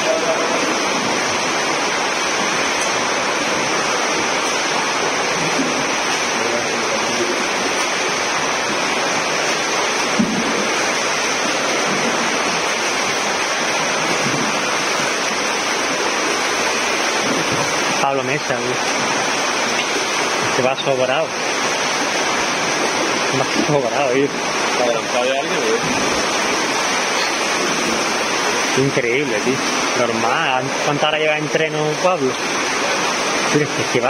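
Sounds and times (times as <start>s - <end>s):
swimmers splashing: 0.0s - 18.0s.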